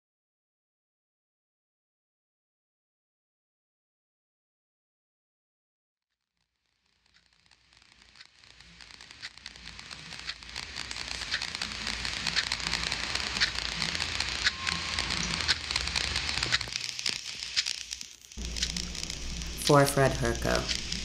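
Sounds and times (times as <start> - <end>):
crackling hiss: 6.5 - 21.0
sharp clicks: 7.1 - 21.0
low hum: 8.6 - 21.0.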